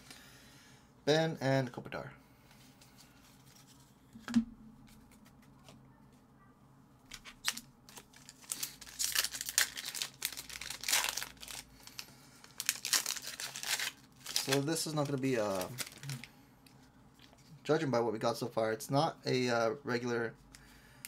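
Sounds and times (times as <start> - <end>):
plastic wrapper crinkling and tearing: 7.1 - 16.3.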